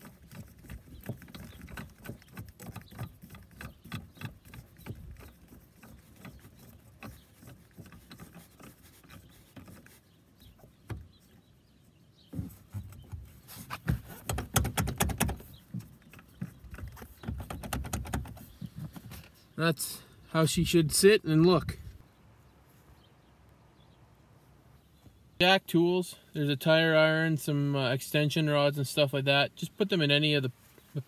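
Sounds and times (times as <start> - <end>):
knocks and rattles: 0.0 - 10.0, 12.3 - 19.3.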